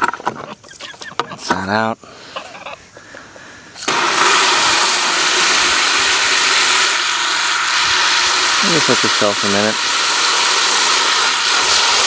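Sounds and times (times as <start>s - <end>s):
hose spraying water into bucket: 3.8s - 12.0s.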